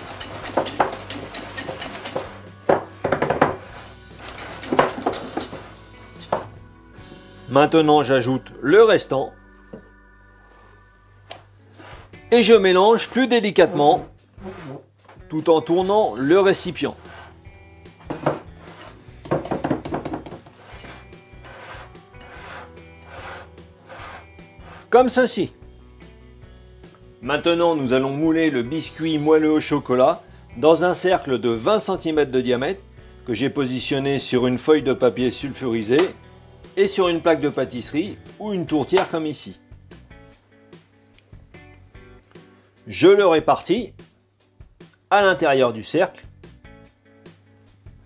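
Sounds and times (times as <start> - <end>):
whisk scraping glass bowl: 0.0 - 2.8, 3.4 - 6.3, 11.7 - 14.8, 16.9 - 17.4, 18.6 - 19.0, 20.4 - 25.0.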